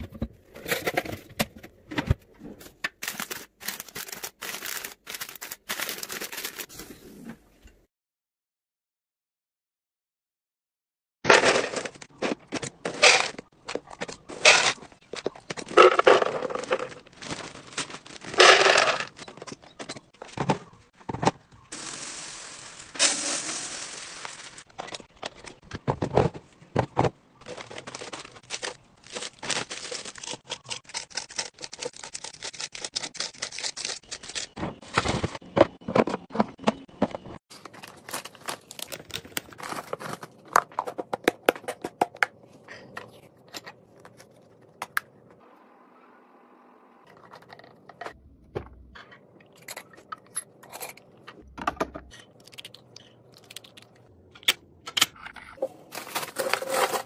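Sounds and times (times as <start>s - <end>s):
snack packaging crinkling: 3.0s - 6.7s, 15.7s - 19.3s, 27.5s - 34.5s, 37.6s - 40.6s, 55.9s - 57.0s.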